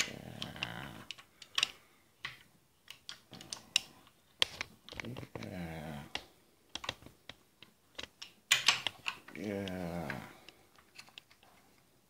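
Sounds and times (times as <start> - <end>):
person making drawn-out vocal sound: 0.0 - 1.1, 5.2 - 6.2, 9.3 - 10.4.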